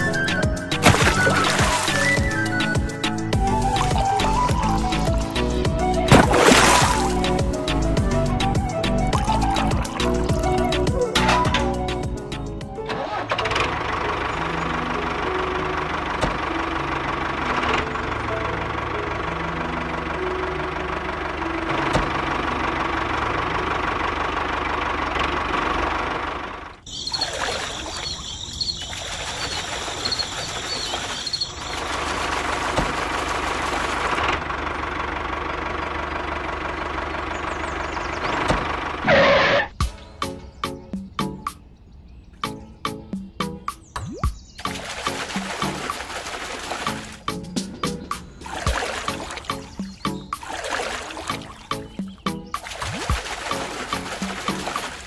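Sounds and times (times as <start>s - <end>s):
high-pitched bird chirping: 26.9s - 31.8s.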